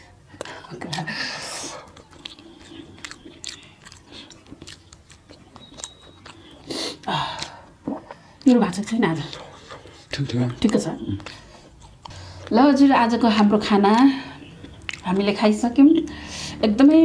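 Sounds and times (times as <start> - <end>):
man chewing and lip-smacking: 0.2 - 8.5, 9.2 - 12.5, 13.8 - 15.1
sucking food off fingers: 0.4 - 8.4.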